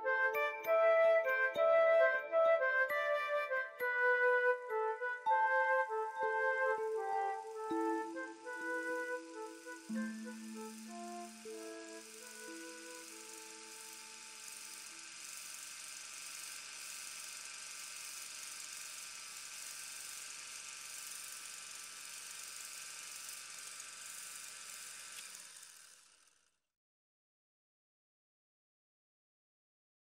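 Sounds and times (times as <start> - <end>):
music: 0.0 - 15.0
mechanical whir and hiss: 6.4 - 26.4.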